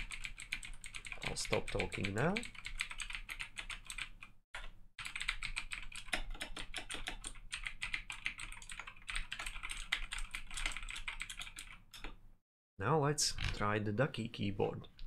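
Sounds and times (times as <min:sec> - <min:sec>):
loud mechanical keyboard typing: 0:00.0 - 0:12.2.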